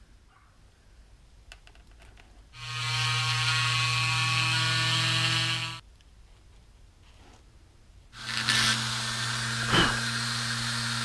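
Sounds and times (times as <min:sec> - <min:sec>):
power tool running: 0:02.6 - 0:05.8, 0:08.2 - 0:11.0.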